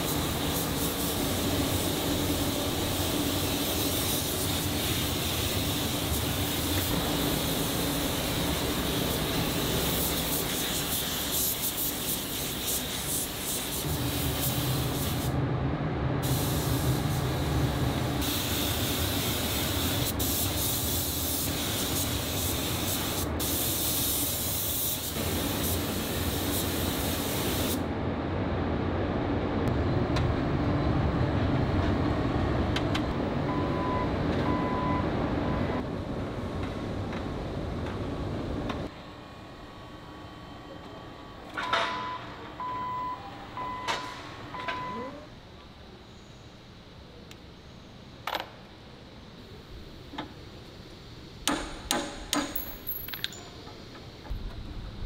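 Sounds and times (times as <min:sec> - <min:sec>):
paint spray gun hissing: 0:00.0 - 0:15.3, 0:18.2 - 0:27.8
steady low hum: 0:00.0 - 0:23.5.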